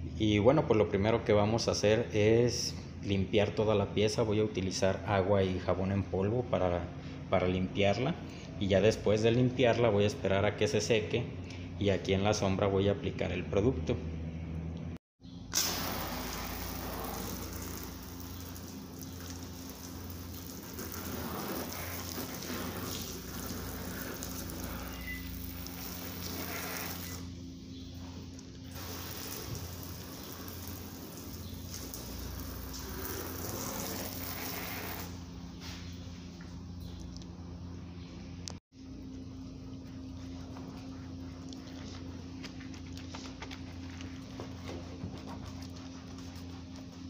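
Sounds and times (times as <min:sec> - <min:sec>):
hose spraying water onto car: 0:15.5 - 0:27.3, 0:28.7 - 0:35.2.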